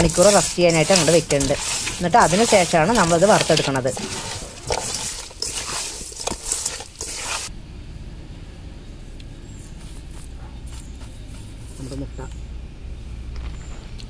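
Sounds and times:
wet squelching of kneaded fish: 0:00.0 - 0:07.5.

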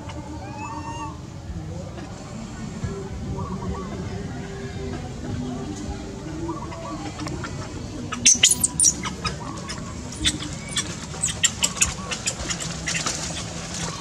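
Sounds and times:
birds chirping: 0:06.4 - 0:14.0.

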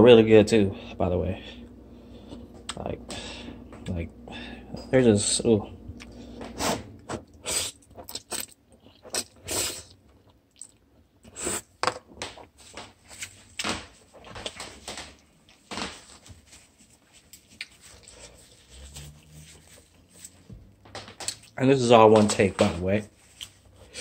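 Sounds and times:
slurping and mouth noises: 0:06.0 - 0:10.0, 0:17.3 - 0:20.4.

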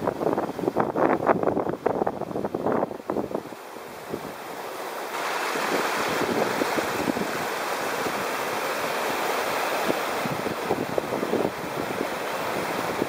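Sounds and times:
flooded river rushing: 0:00.0 - 0:13.0.

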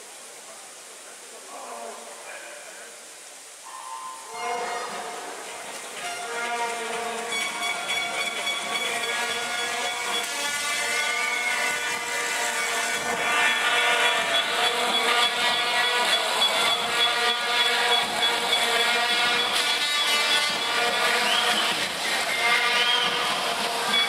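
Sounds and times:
horn tones: 0:03.7 - 0:24.0
spectators cheering: 0:06.3 - 0:24.0
whistle tones: 0:07.3 - 0:12.1, 0:13.5 - 0:24.0.

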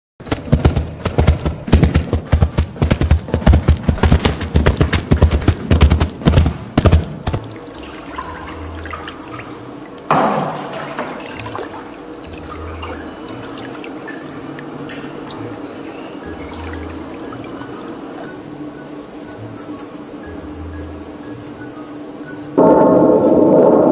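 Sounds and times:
galloping hoofbeats: 0:00.2 - 0:07.5
water trickling and dripping: 0:07.2 - 0:22.6
board splashing into water: 0:10.1 - 0:11.2.

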